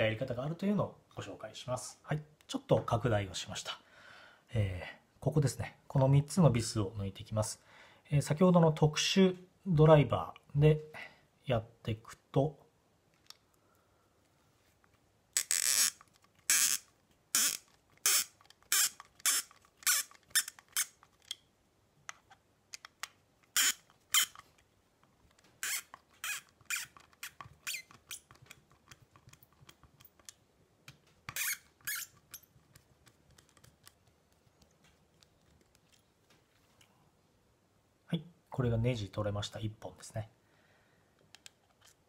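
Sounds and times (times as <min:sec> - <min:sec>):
screw squeaking: 0:15.4 - 0:21.4, 0:23.5 - 0:24.5, 0:25.6 - 0:30.3, 0:31.3 - 0:33.7.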